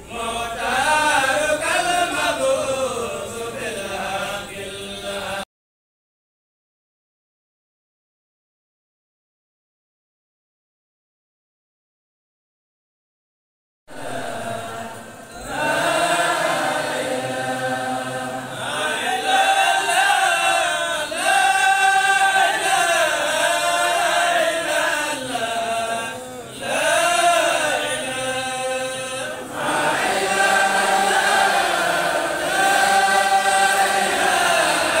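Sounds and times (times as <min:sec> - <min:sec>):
men chanting in unison: 0:00.0 - 0:05.5, 0:13.9 - 0:35.0.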